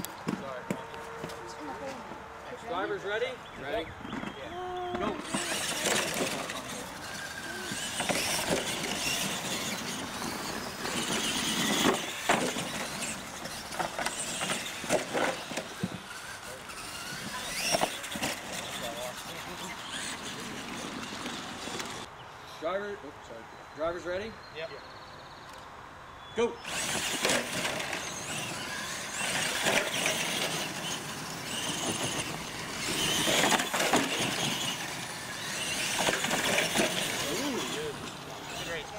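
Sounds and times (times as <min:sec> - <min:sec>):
tyres scrabbling on dirt: 0:03.5 - 0:22.1, 0:26.7 - 0:38.9
toy truck motors whining: 0:03.8 - 0:22.1, 0:26.6 - 0:38.9
trucks clattering into ramps: 0:04.0 - 0:22.1, 0:26.7 - 0:38.8.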